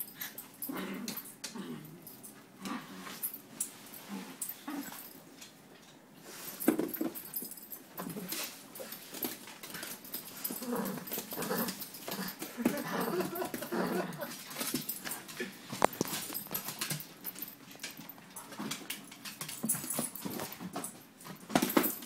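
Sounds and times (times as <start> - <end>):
dog growling: 0.7 - 3.0, 10.4 - 14.3.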